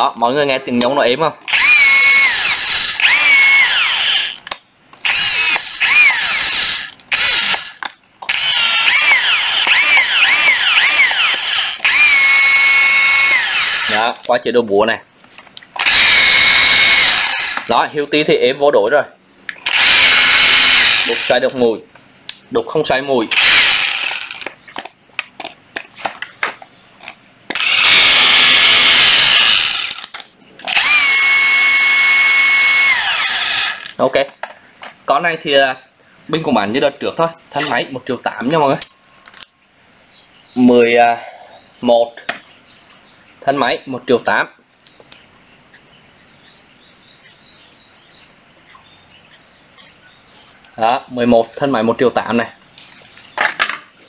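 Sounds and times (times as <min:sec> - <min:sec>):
sharp tool clicks: 0:01.5 - 0:12.5
rotary hammer motor whining: 0:01.5 - 0:14.0, 0:15.8 - 0:17.7, 0:19.6 - 0:21.5, 0:23.3 - 0:24.5, 0:27.5 - 0:34.0
motor whine: 0:05.0 - 0:13.9.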